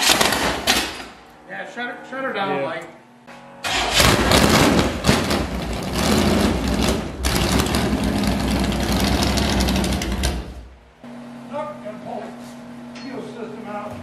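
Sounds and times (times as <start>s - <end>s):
loud uneven engine running: 3.7s - 10.8s.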